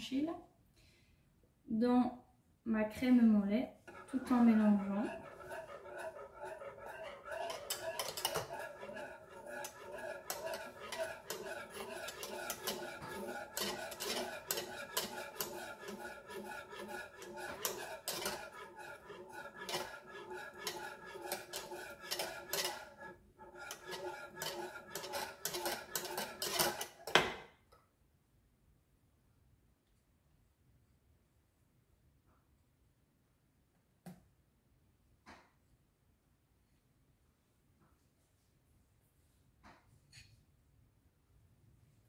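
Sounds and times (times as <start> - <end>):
whisk clack: 3.9 - 27.2
whisk clicking against a saucepan: 3.9 - 27.2.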